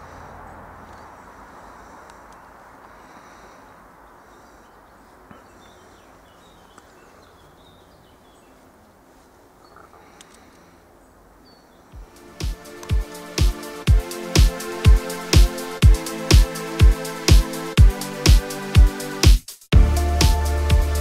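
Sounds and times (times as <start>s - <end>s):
background hiss: 0.0s - 21.0s
music with heavy beat: 12.0s - 21.0s.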